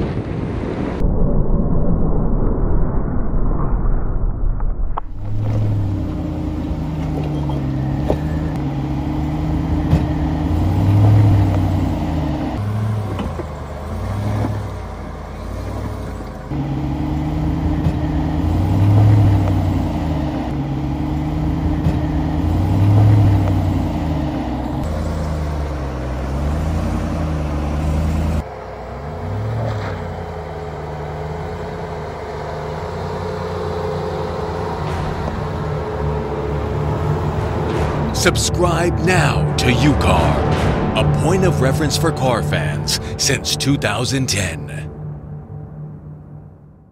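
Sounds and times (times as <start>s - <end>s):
truck engine at low speed: 4.2s - 46.9s.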